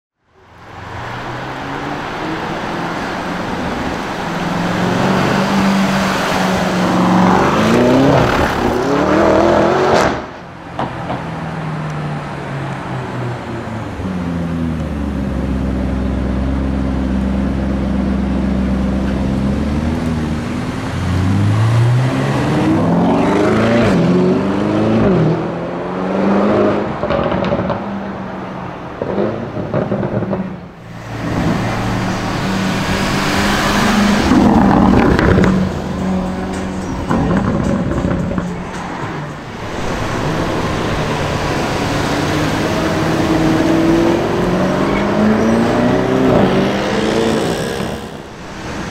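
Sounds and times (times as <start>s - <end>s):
car engine revving: 0.7s - 11.0s, 29.0s - 48.9s.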